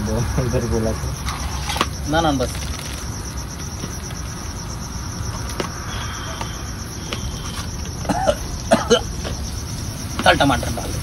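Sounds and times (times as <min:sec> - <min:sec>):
crickets chirping: 0:00.0 - 0:11.0
gas burner hiss: 0:05.0 - 0:11.0.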